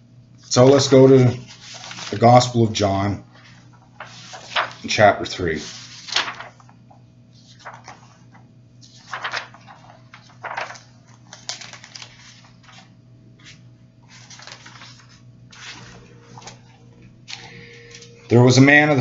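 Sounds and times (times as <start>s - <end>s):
pages rustling: 1.4s - 2.6s, 3.4s - 18.1s.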